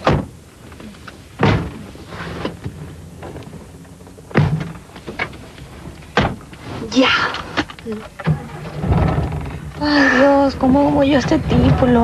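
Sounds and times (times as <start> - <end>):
car door thunking shut: 0.0 - 0.4, 1.4 - 3.6, 4.3 - 5.3, 6.1 - 6.5.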